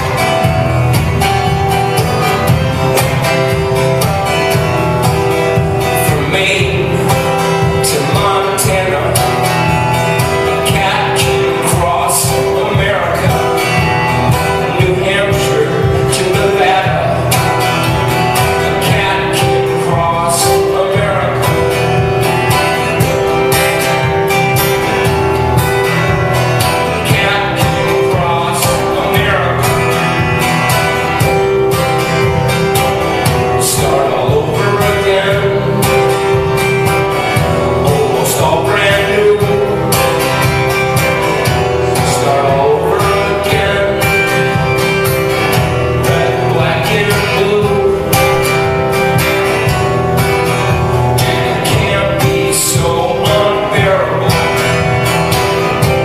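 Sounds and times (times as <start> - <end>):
acoustic guitar playing: 0.0 - 56.0
man singing: 0.0 - 56.0.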